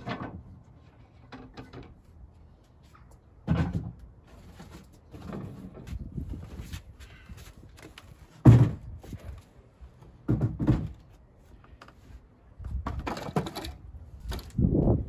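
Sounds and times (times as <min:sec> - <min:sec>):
wooden knocks and thumps: 0:08.4 - 0:09.3, 0:10.2 - 0:11.1.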